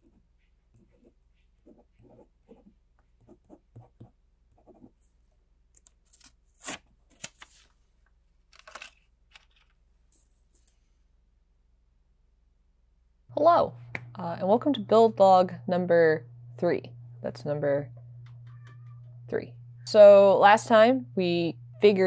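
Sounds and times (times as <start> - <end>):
marker pen writing on paper: 0.0 - 5.0
paper rustling: 6.0 - 9.8.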